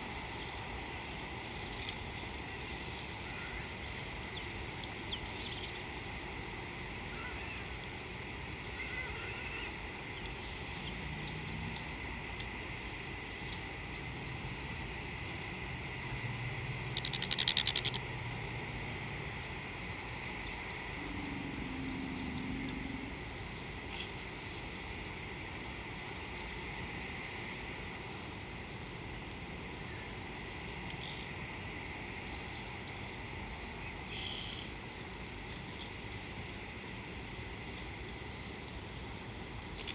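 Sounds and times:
steady high drone: 18.3s - 24.8s.

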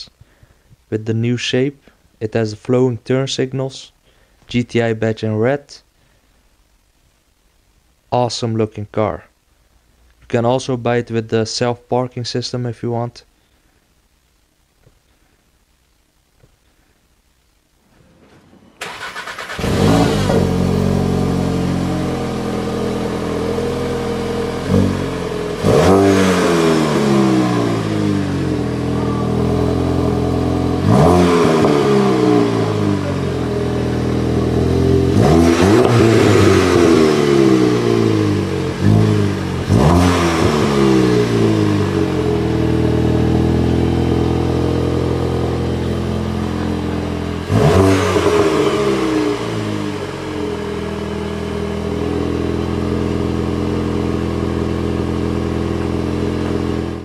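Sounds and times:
car engine idling and revving: 18.8s - 57.0s.

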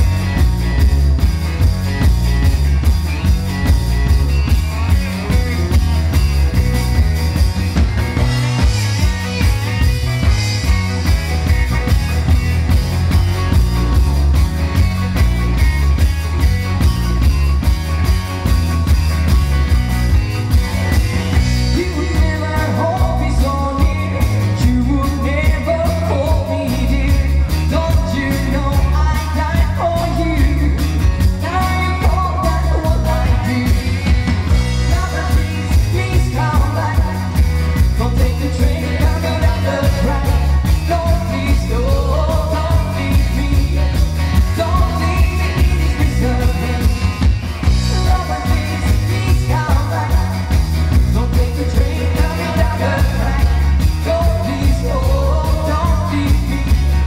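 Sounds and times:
live dance band music: 0.0s - 57.0s
woman singing: 47.9s - 56.8s.

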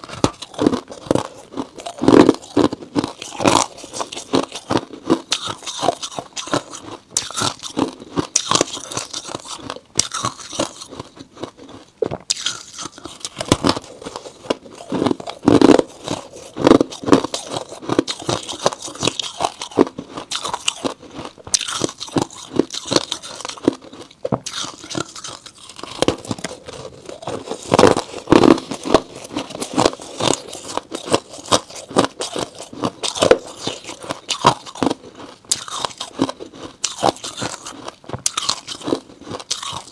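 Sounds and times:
crunching frost being chewed: 0.0s - 39.9s.

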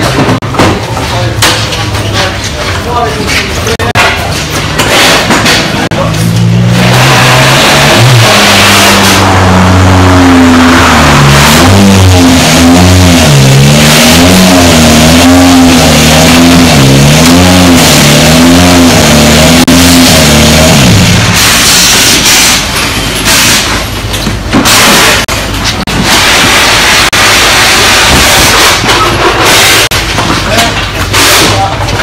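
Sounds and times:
rally car engine revving: 3.3s - 22.6s, 24.6s - 30.0s.

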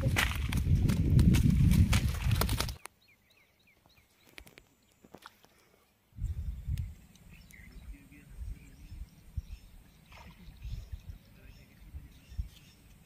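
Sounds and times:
clicks and rustles: 0.0s - 2.9s.

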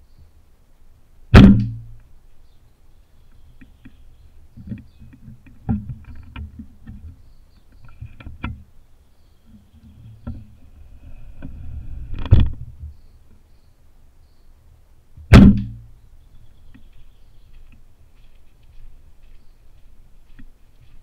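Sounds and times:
sharp knock: 1.4s - 1.9s, 15.3s - 15.8s
bow clicks and creaks: 3.3s - 8.7s, 9.5s - 13.4s.

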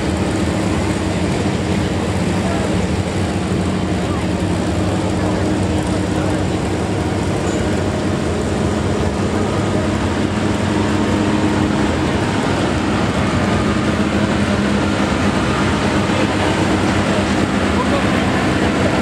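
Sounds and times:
tractor engine running: 0.0s - 19.0s.

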